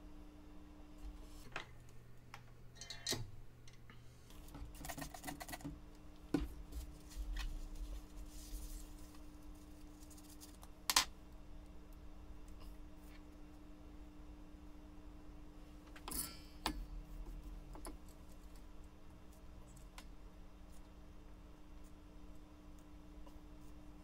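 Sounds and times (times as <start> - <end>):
faint steady hum: 0.0 - 24.0
tools clicking and scraping: 2.8 - 3.8.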